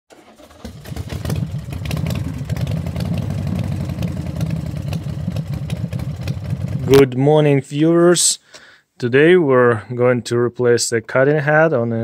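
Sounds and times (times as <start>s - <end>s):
engine running: 0.2s - 7.0s.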